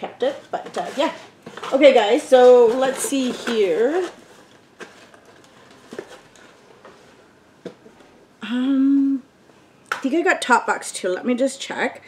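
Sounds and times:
woman humming: 8.4 - 9.3.

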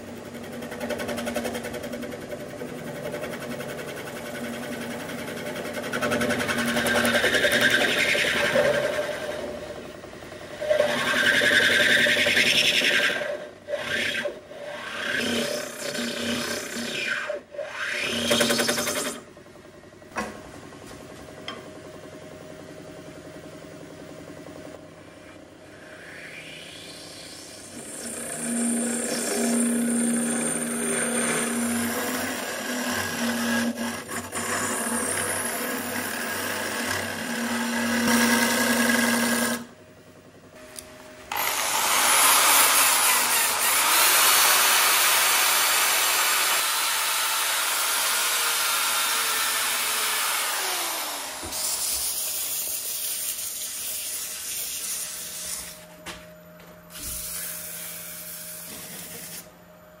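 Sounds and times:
wood lathe motor humming: 0.0 - 19.2, 25.1 - 39.8, 40.8 - 53.4
scraper cutting wood on lathe: 3.0 - 9.6, 10.6 - 19.2, 25.7 - 39.7, 41.3 - 55.8
power sanding: 41.3 - 55.8.

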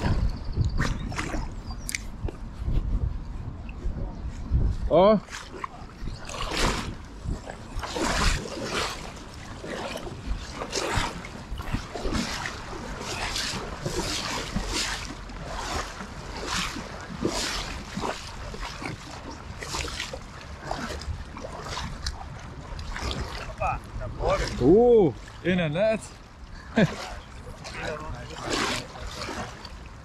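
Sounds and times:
water splashing: 0.0 - 2.4, 5.2 - 30.0
stream rushing: 6.2 - 30.0.

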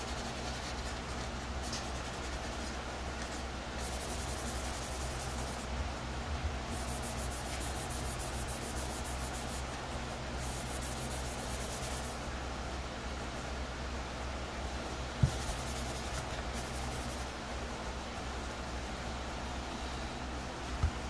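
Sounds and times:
sanding sponge rubbing plastic: 0.0 - 5.7, 6.8 - 9.7, 10.4 - 12.2, 15.2 - 17.3
steady low hum: 0.0 - 21.0.

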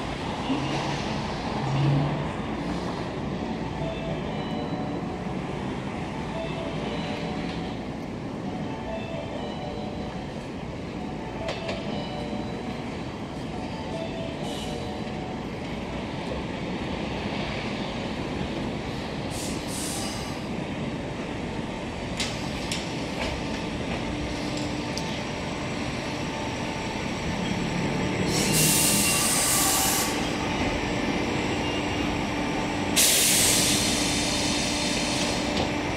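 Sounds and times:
electric train braking to a stop: 22.2 - 35.9
loud hisses: 33.0 - 35.5.

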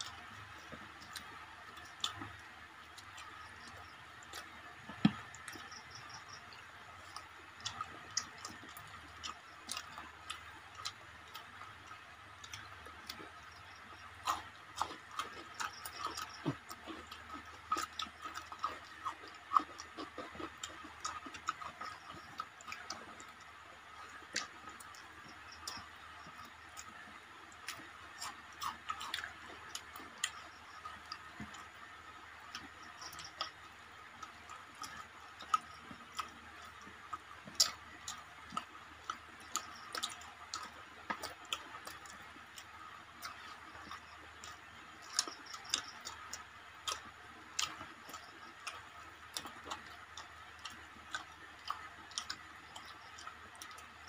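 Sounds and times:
chewing and eating sounds: 0.0 - 54.0
faint steady hum: 0.0 - 54.0.

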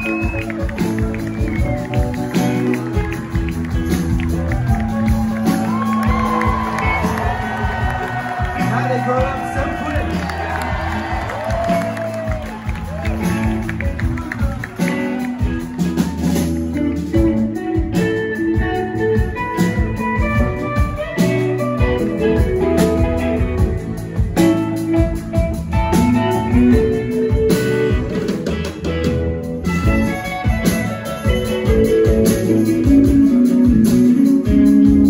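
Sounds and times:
electric guitar: 0.0 - 35.0
live rock band playing: 0.0 - 35.0.

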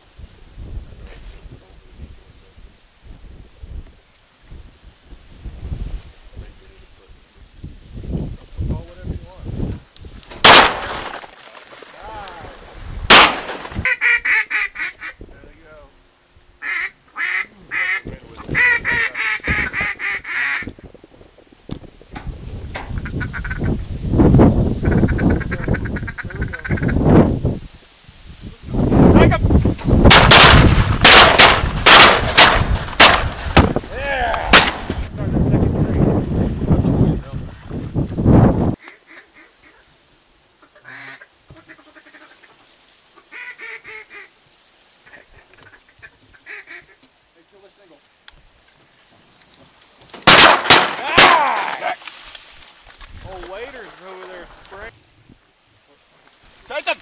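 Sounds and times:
duck and goose calls: 13.8 - 15.2, 16.6 - 20.8, 22.9 - 23.8, 24.8 - 27.1, 38.8 - 39.9, 40.6 - 44.4, 45.0 - 47.1.

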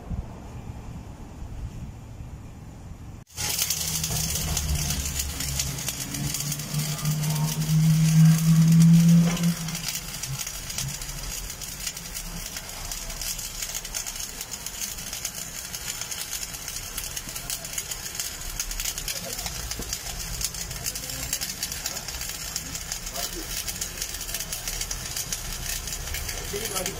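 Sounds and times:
low hum: 0.0 - 13.0
arc welding sizzling crackle: 3.2 - 26.9.

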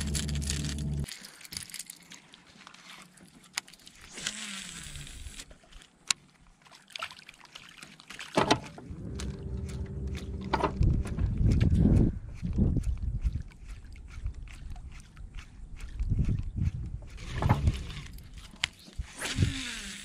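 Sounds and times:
low rumble: 0.0 - 1.1, 8.8 - 12.8
lure splashing on water: 1.8 - 12.2, 12.8 - 19.7
fishing reel clicks: 4.0 - 5.5, 17.2 - 20.0.

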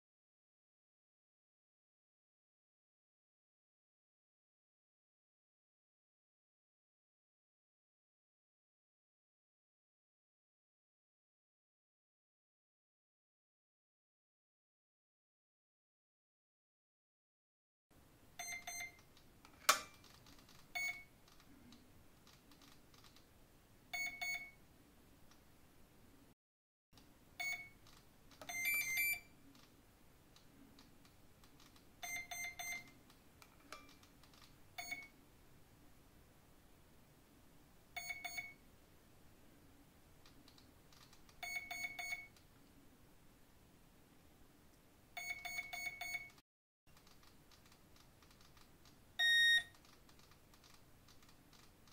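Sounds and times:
short beeps from motor: 28.5 - 29.3, 49.2 - 49.7
short electronic beeps: 28.5 - 29.3, 32.0 - 32.9, 38.0 - 38.6, 41.4 - 42.3, 45.2 - 46.4, 49.2 - 49.7.

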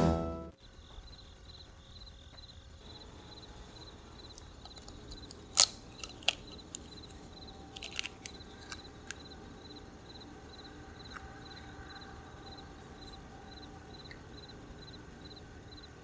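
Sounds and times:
crickets chirping: 0.6 - 16.0
eggshell cracking: 4.2 - 9.8
sharp clicks: 4.3 - 9.8.

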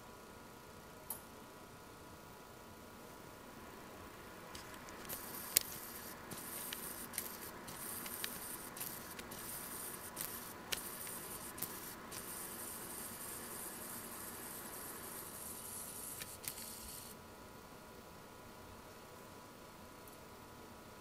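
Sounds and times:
faint high whine: 0.0 - 21.0
camera clicks: 4.6 - 12.5, 16.0 - 17.1.

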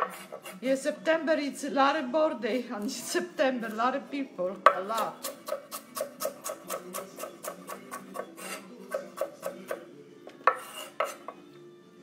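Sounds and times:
knife chopping on wooden board: 0.0 - 0.6, 4.6 - 11.4.

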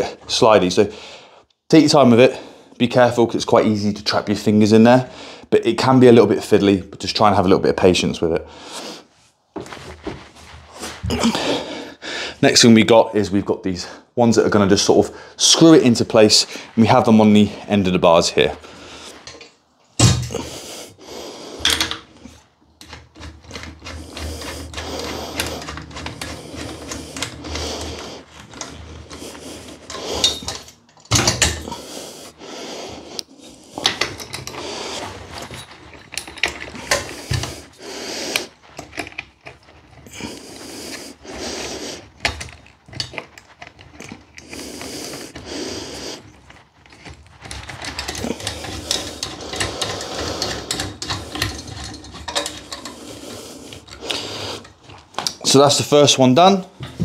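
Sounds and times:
metal fittings clicking and scraping: 14.5 - 57.0.

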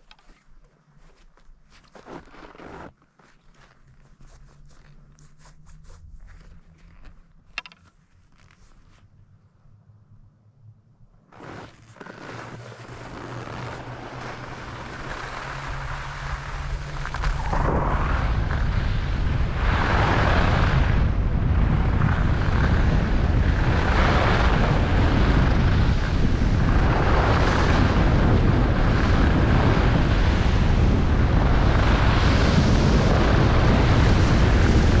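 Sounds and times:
skis hissing and scraping on snow: 11.4 - 18.8
wind buffeting microphone: 13.1 - 35.0.

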